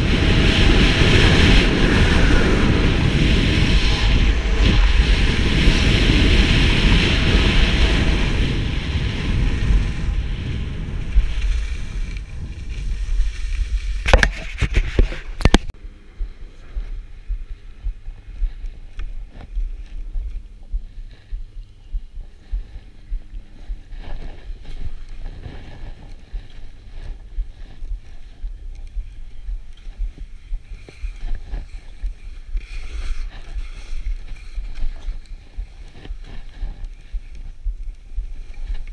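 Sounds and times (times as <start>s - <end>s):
skis on snow: 0.0s - 15.4s, 22.4s - 28.7s, 29.8s - 38.9s
wind on microphone: 0.0s - 38.9s.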